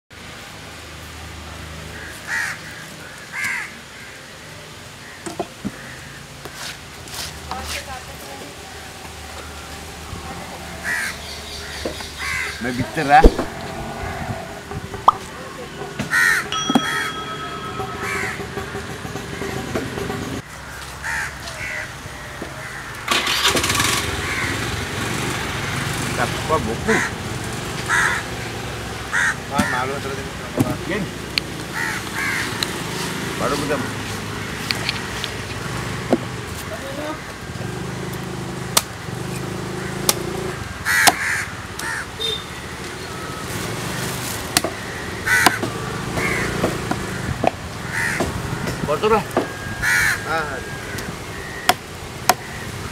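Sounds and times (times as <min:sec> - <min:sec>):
crows cawing: 0:01.9 - 0:04.3, 0:05.0 - 0:06.7, 0:10.7 - 0:14.8, 0:16.1 - 0:17.4, 0:18.0 - 0:18.4, 0:20.4 - 0:23.4, 0:24.2 - 0:24.6, 0:26.9 - 0:27.2, 0:27.8 - 0:30.2, 0:31.7 - 0:33.1, 0:39.0 - 0:42.4, 0:44.7 - 0:48.8, 0:49.5 - 0:51.6, 0:52.3 - 0:52.8
engine hum: 0:05.8 - 0:52.9.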